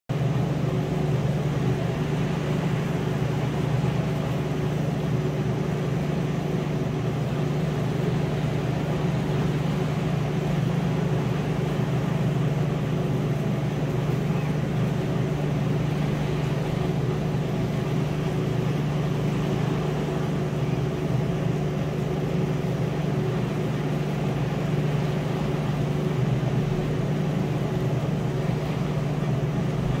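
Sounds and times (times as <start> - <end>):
steady mechanical hum: 0.1 - 30.0.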